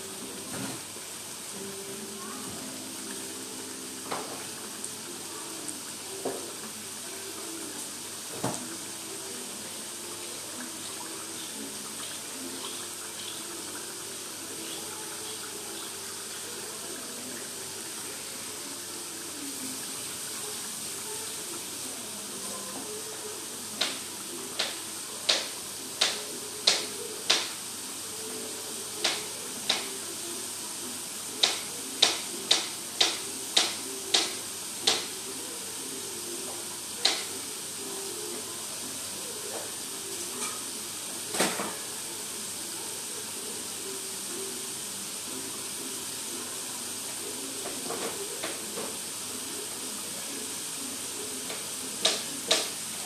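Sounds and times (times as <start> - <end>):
aromatics sizzling in a wok: 0.0 - 53.0.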